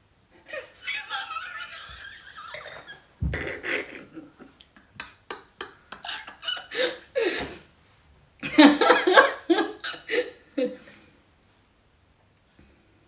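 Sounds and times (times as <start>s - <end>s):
woman laughing hard: 0.4s - 7.6s, 8.4s - 10.9s.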